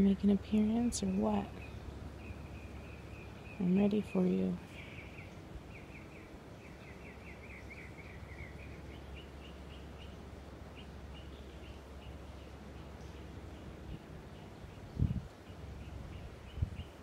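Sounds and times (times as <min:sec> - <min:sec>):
low background rumble: 0:00.0 - 0:17.0
small bird chirping: 0:00.6 - 0:17.0.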